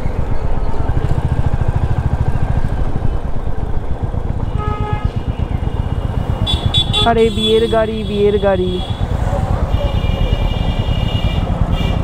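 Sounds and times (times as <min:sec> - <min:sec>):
vehicle horn: 0:04.5 - 0:09.1, 0:09.7 - 0:12.0.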